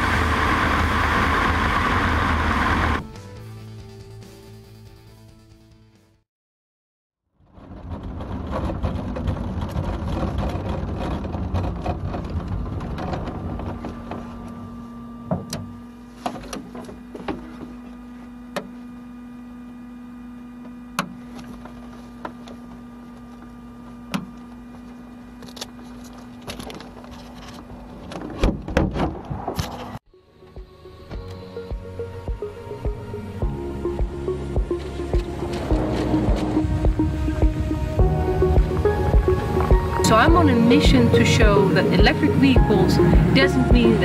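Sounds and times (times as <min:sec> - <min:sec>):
vehicle rolling rumble: 0:07.4 - 0:18.9, 0:21.2 - 0:44.0
handling rumble: 0:07.4 - 0:19.0, 0:31.7 - 0:44.0
steady electric hum: 0:30.7 - 0:44.0.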